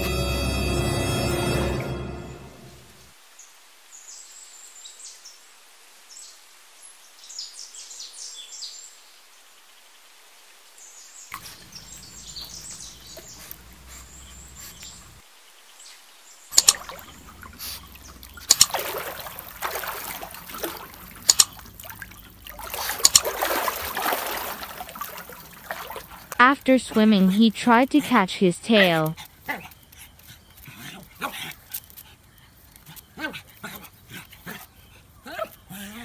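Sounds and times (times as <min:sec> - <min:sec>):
faint bird chirping: 0:10.8 - 0:18.5, 0:28.8 - 0:36.0
water splashing and sloshing: 0:16.5 - 0:30.6.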